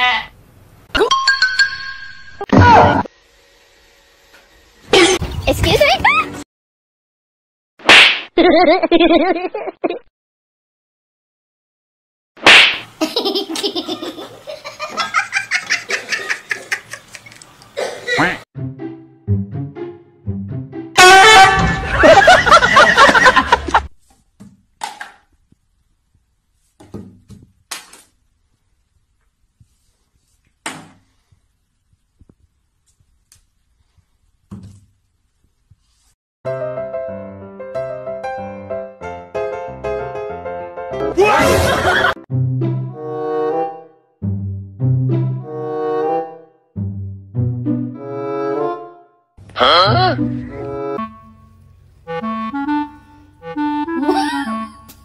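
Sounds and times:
piano music: 18.6 - 21.2, 36.5 - 49.1, 49.9 - 55.0
laughter in short bursts: 54.0 - 54.8.

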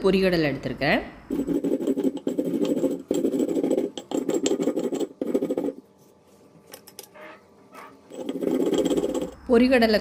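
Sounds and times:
stone roller grinding on slab: 1.3 - 5.8, 7.1 - 9.4.

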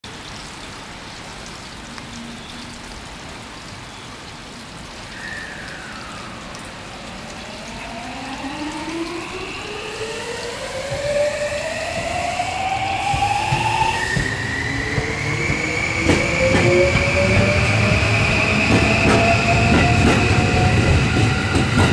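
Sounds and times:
steady background hiss: 3.0 - 8.7
electric train motors whining: 7.4 - 21.9.

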